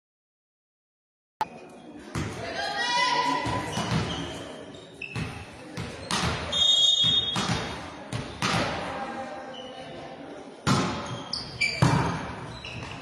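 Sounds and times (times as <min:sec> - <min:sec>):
ball bouncing on hall floor: 0:03.4 - 0:04.3, 0:05.2 - 0:08.8, 0:10.6 - 0:13.0.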